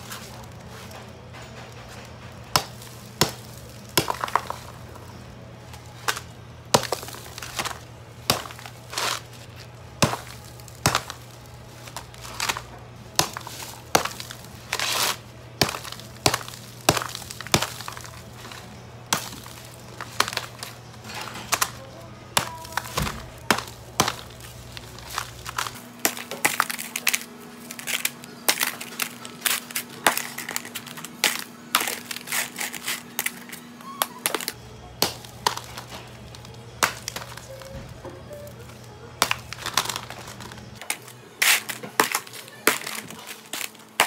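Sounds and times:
steady low hum: 0.0s - 33.8s
crunching scrapes: 0.0s - 44.0s
dry ice cracking: 0.0s - 44.0s.

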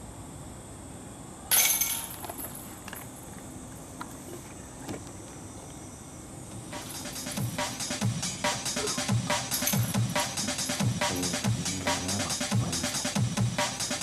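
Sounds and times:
faint chain clinks: 1.5s - 3.3s, 9.6s - 10.1s
metal chain rattle: 6.8s - 7.6s, 9.5s - 10.2s.

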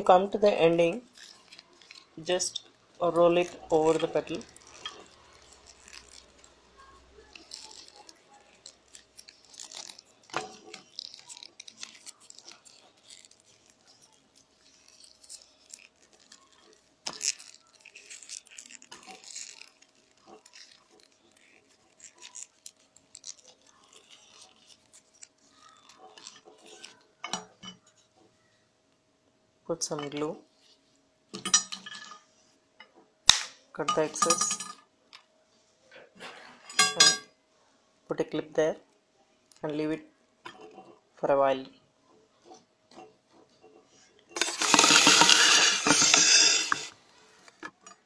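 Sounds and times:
paper rustling and crinkling: 3.3s - 27.2s, 44.3s - 47.8s.

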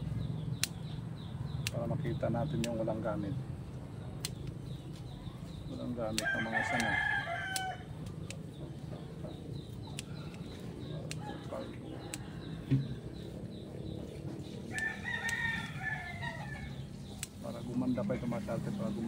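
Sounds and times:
scissors snipping: 2.5s - 3.0s, 4.2s - 5.2s, 6.0s - 8.5s, 9.6s - 12.3s, 14.7s - 15.4s, 17.1s - 18.1s
rooster crowing: 6.2s - 8.0s, 14.7s - 16.9s.

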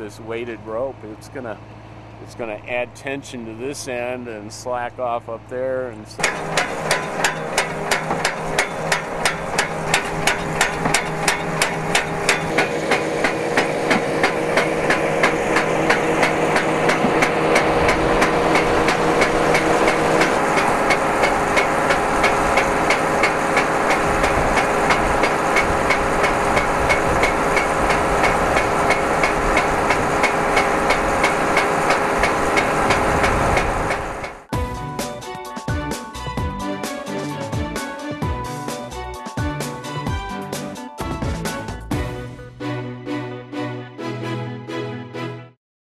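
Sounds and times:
winch running with metallic clacking: 6.2s - 34.5s.

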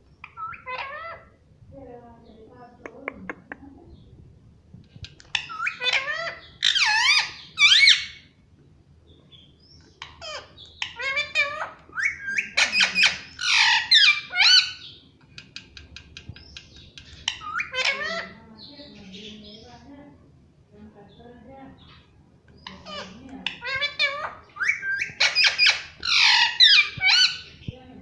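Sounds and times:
parrot high calls: 0.2s - 1.4s, 5.3s - 8.3s, 10.0s - 15.0s, 17.2s - 18.4s, 22.6s - 27.6s
parrot soft ticks and chirps: 4.7s - 5.8s, 15.2s - 18.0s.

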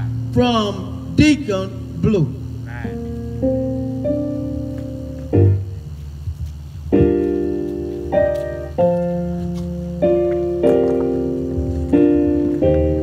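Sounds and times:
keyboard playing slow chords: 0.0s - 13.0s.

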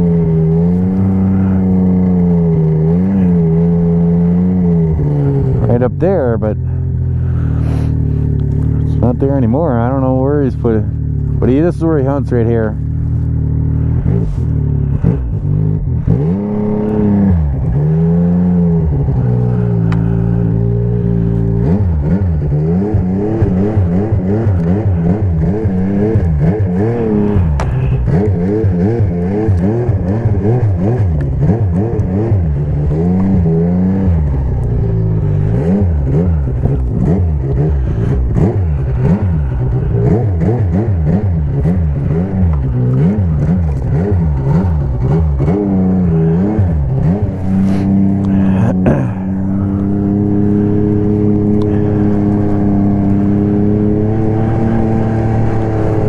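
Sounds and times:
snowmobile engine revving: 0.0s - 56.0s.

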